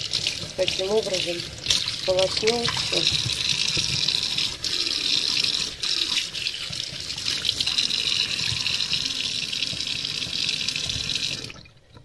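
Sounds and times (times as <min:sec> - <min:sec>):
tap water splashing in metal sink: 0:00.0 - 0:04.2.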